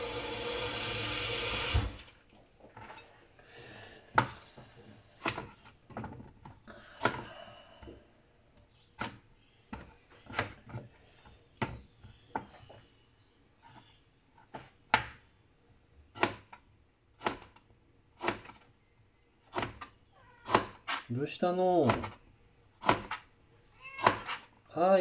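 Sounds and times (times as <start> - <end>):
kitchen tap running: 0.0 - 2.3.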